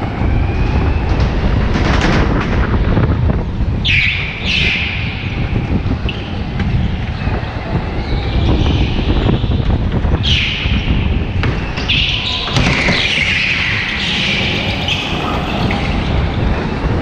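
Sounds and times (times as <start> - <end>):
tyres squealing: 11.7 - 16.3.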